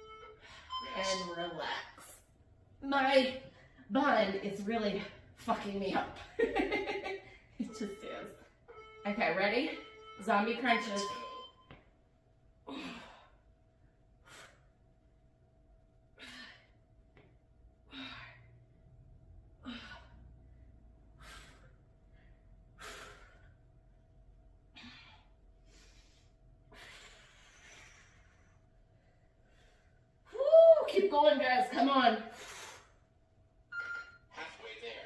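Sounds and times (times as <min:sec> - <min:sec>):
woman's sharp exhaled breaths: 0:21.1 - 0:23.6.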